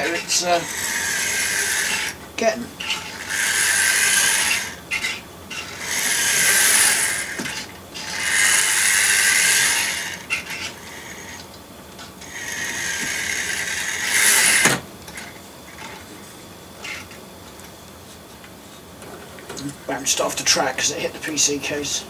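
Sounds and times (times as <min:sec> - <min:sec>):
model train motor whirring: 0:00.0 - 0:02.2, 0:02.8 - 0:11.4, 0:12.2 - 0:16.0, 0:16.8 - 0:17.2.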